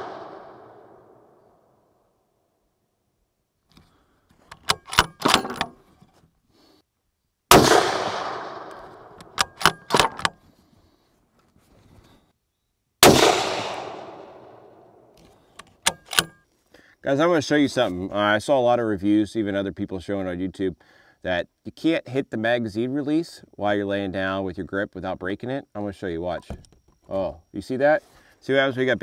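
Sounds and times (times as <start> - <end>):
rifle shots with echo: 0.0 - 1.4, 7.5 - 10.3, 13.0 - 15.0
rifle bolt clicks: 4.5 - 5.8, 8.6 - 10.4, 15.6 - 16.4.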